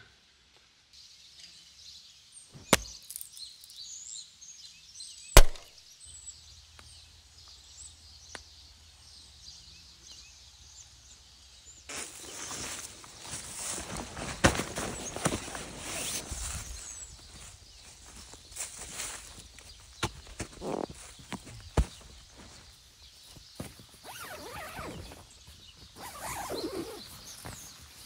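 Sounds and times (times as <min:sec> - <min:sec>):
birds chirping: 0:01.0 - 0:28.0
footsteps rustling on forest floor: 0:11.9 - 0:28.0.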